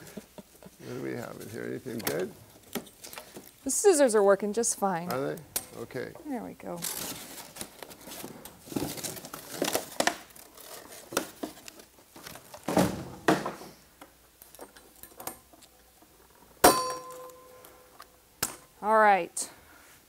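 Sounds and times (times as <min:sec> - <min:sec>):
cardboard rustling: 0:06.9 - 0:13.1
metal part clanging and ringing: 0:16.6 - 0:17.6.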